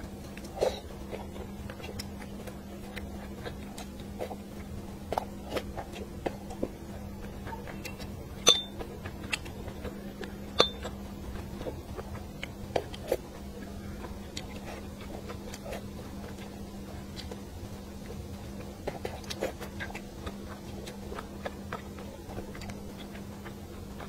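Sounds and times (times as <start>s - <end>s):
person eating: 0.0s - 24.0s
chopsticks clinking on a dish: 7.8s - 8.8s, 10.6s - 10.9s
chopsticks tapping a dish: 8.4s - 8.8s, 10.6s - 10.9s.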